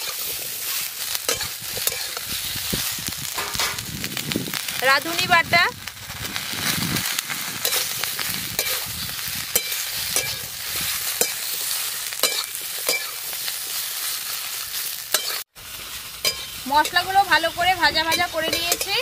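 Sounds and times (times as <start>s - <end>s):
vegetables sizzling in oil: 0.0s - 19.0s
metal spatula scraping pan: 3.4s - 3.8s, 7.6s - 8.8s.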